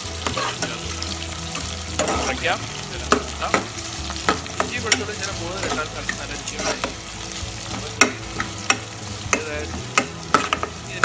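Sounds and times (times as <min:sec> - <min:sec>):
vegetables sizzling in oil: 0:00.0 - 0:11.0
metal spoon scraping pot: 0:00.2 - 0:00.8, 0:01.6 - 0:02.5, 0:03.1 - 0:07.0, 0:07.7 - 0:10.8.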